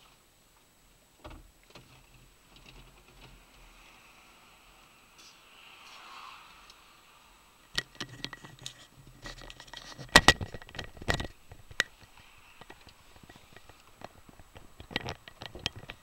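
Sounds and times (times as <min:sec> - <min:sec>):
faint cabin road noise: 0:00.0 - 0:16.0
dashcam clicks and rattles: 0:07.7 - 0:16.0.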